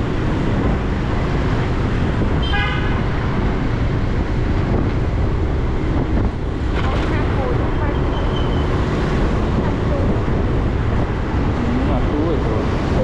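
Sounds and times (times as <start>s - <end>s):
street traffic rumble: 0.0s - 13.0s
wind: 0.0s - 13.0s
vehicle horn toot: 2.4s - 3.1s.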